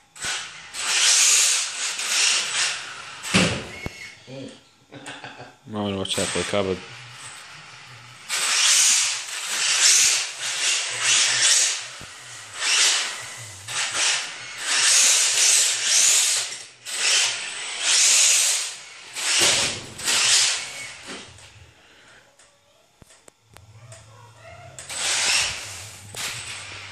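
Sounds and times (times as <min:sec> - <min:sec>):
high-pitched motor whine: 0:05.3 - 0:21.8, 0:23.4 - 0:26.9.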